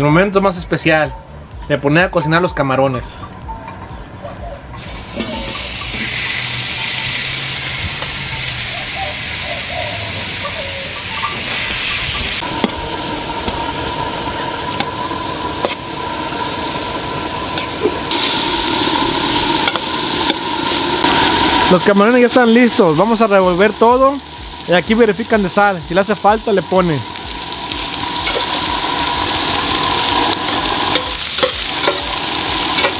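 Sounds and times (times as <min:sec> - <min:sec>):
shrimp sizzling in hot oil: 0:04.8 - 0:32.9
spatula scraping metal pan: 0:05.1 - 0:07.2.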